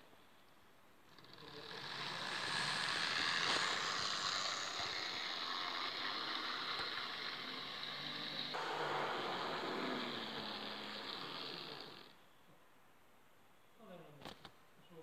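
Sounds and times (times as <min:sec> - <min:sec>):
electric locomotive passing: 0:01.4 - 0:12.0.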